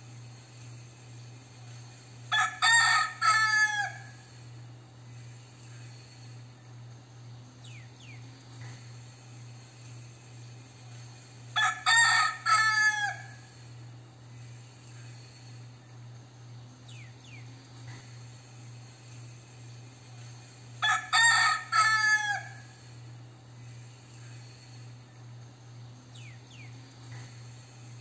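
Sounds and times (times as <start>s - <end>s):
rooster crowing: 2.3s - 4.4s, 11.6s - 13.6s, 20.8s - 22.9s.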